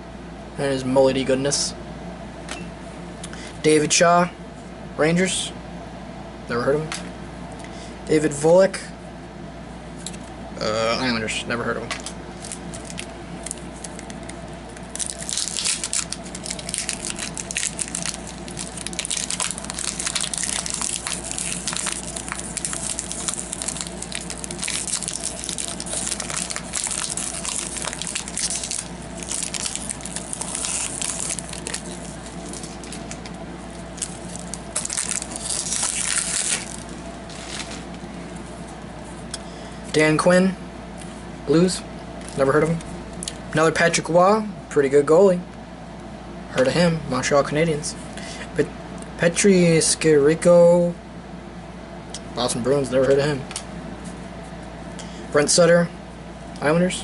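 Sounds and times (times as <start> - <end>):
wrapper tearing and crinkling: 12.4 - 33.2, 33.8 - 37.8.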